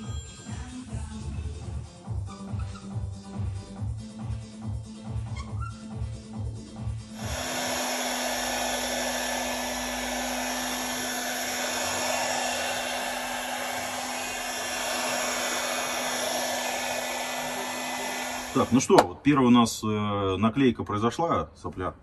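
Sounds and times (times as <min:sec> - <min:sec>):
heat gun blowing air: 0:07.2 - 0:19.0.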